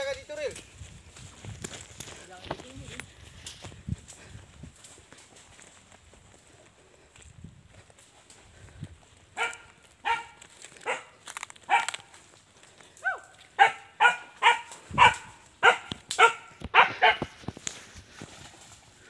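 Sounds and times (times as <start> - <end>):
dog barking: 9.4 - 12.1, 13.0 - 17.3.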